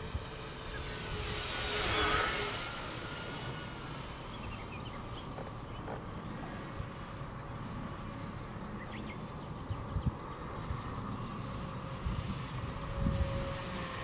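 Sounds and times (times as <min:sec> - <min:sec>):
distant model plane motor whine: 0:00.0 - 0:14.0
wind rumble on microphone: 0:08.8 - 0:14.0.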